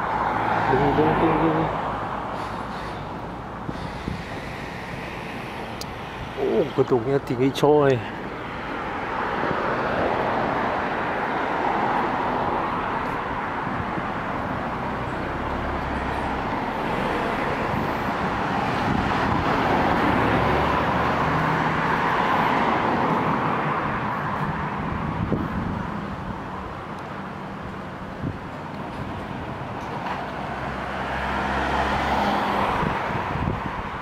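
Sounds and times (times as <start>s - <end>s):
cars passing on a street: 0.0s - 34.0s.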